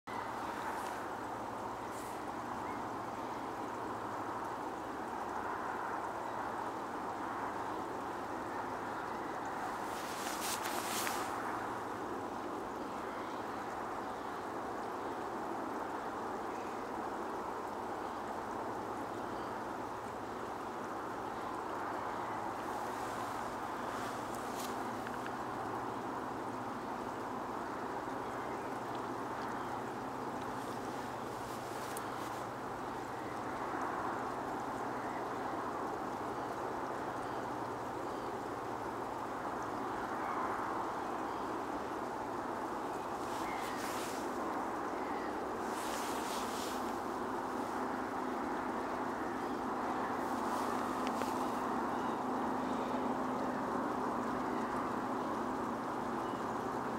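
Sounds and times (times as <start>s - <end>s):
low constant water rush: 0.0s - 56.9s
distant bird calls: 0.1s - 4.2s, 7.6s - 15.2s, 21.2s - 36.6s, 39.8s - 56.7s
waterbird calls: 43.1s - 53.0s.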